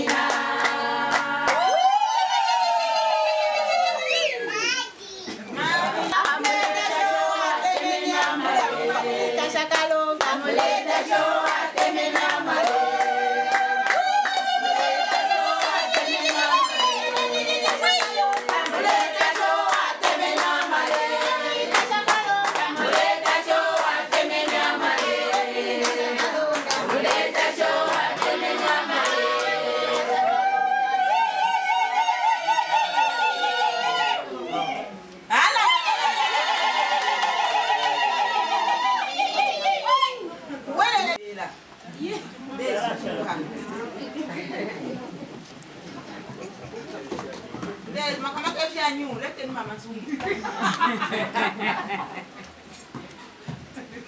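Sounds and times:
women singing together: 0.0 - 4.5, 5.5 - 41.2.

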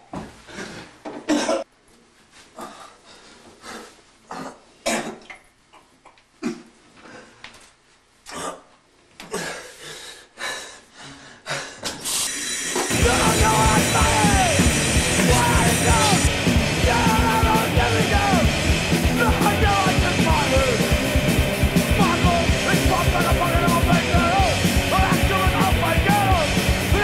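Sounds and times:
person gasping: 0.4 - 1.0, 7.0 - 7.6, 9.2 - 12.0
punk rock music with shouting singer: 12.9 - 27.0.

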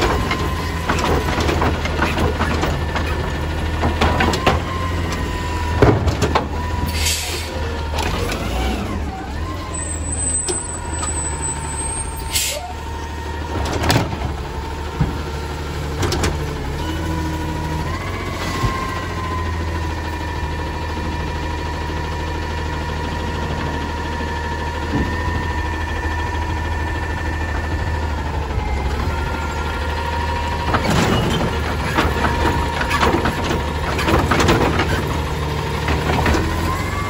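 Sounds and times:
truck engine idling: 0.0 - 37.0
air brake hiss: 7.0 - 7.5, 12.3 - 12.6
hydraulic whine: 16.2 - 33.4.

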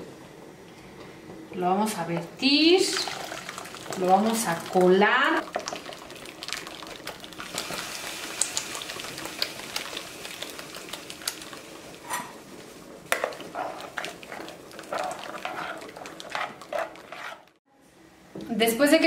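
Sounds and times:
boiling broth hissing: 2.6 - 17.6.

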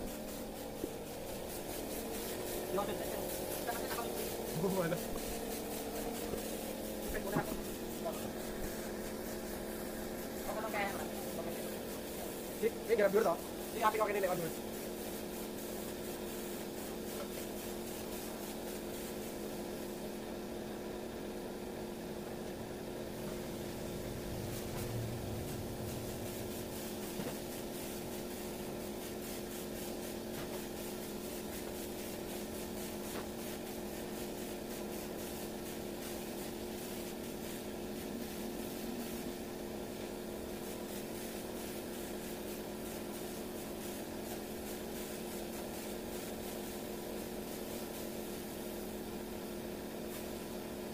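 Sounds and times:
air compressor running: 0.0 - 50.9
spray gun hissing: 0.0 - 50.9.

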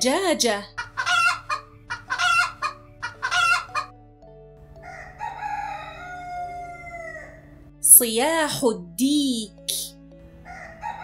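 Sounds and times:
hen clucking: 0.8 - 3.9
rooster crowing: 4.8 - 7.5, 10.4 - 11.0.

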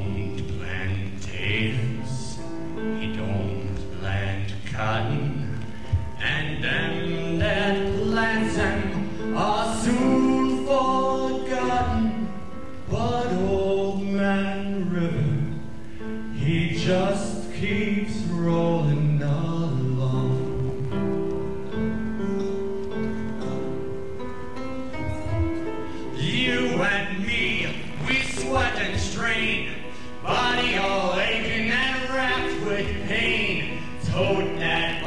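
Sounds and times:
man singing into microphone: 0.0 - 21.1, 25.9 - 35.0
backing music: 0.0 - 35.0.

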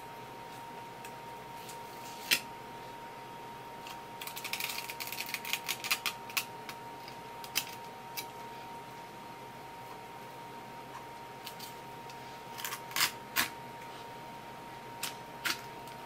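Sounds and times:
faint steady hum: 0.0 - 16.0
knife crackling along fish bones: 4.2 - 6.5.

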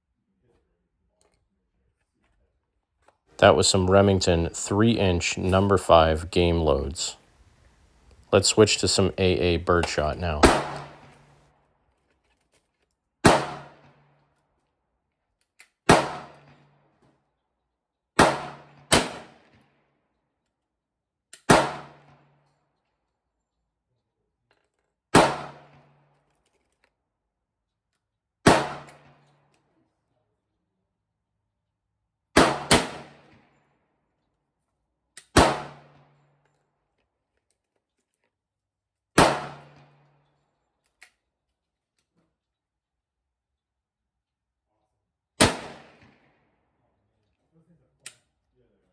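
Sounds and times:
gunshots: 9.7 - 11.3, 13.2 - 13.9, 15.9 - 16.5, 18.2 - 19.5, 21.5 - 22.1, 25.1 - 25.8, 28.4 - 29.1, 32.4 - 33.4, 35.3 - 36.0, 39.2 - 39.8, 45.4 - 46.3.

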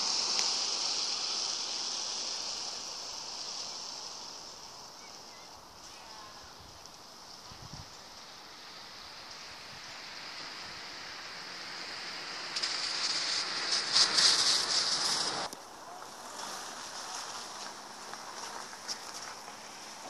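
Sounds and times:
wind rushing over microphone: 5.5 - 18.0.

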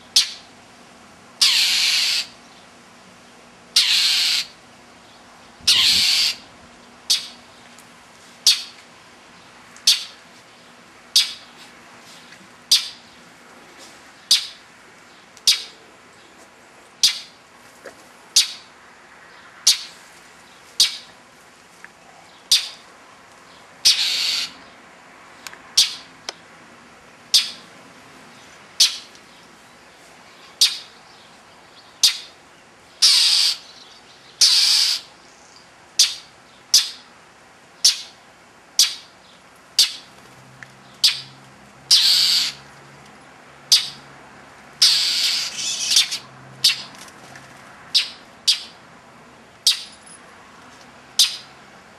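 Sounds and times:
bird harsh call notes: 0.1 - 0.5, 1.4 - 2.4, 3.8 - 4.6, 5.6 - 6.5, 7.1 - 7.5, 8.4 - 8.8, 9.8 - 10.2, 11.1 - 11.6, 12.7 - 13.2, 14.2 - 14.6, 15.4 - 15.8, 17.0 - 17.4, 19.7 - 19.9, 20.8 - 21.1, 22.4 - 22.8, 23.8 - 24.7, 25.8 - 26.1, 27.3 - 27.7, 28.8 - 29.1, 30.4 - 31.0, 32.0 - 32.4, 33.0 - 35.2, 36.0 - 37.1, 38.8 - 39.2, 41.0 - 41.3, 41.9 - 42.6, 43.7 - 44.0, 44.8 - 46.9, 48.0 - 48.8, 49.6 - 50.0, 51.2 - 51.5
bird longer harsh calls: 1.4 - 2.4, 3.8 - 4.6, 5.6 - 6.5, 7.1 - 7.4, 8.4 - 8.8, 9.8 - 10.2, 12.7 - 13.0, 20.8 - 21.1, 23.8 - 24.6, 25.8 - 26.1, 27.3 - 27.6, 30.5 - 31.0, 33.0 - 33.7, 34.4 - 35.1, 41.9 - 42.6, 44.8 - 46.9, 51.2 - 51.5.

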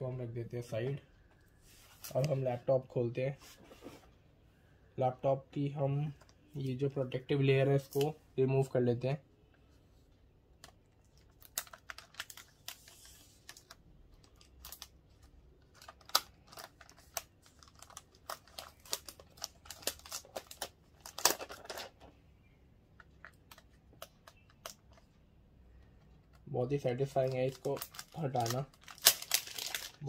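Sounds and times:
plastic wrap crinkling: 11.1 - 21.9, 26.7 - 30.0.

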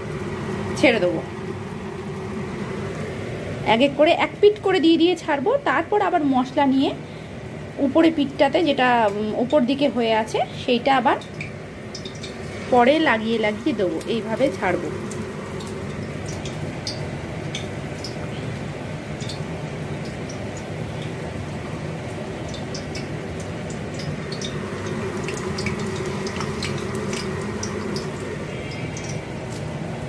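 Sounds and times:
fish frying in hot oil: 0.0 - 30.0.

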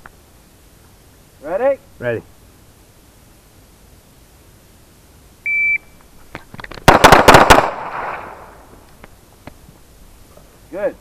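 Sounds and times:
shot timer beep: 5.5 - 5.9
rapid pistol shots with echo: 6.8 - 8.4.

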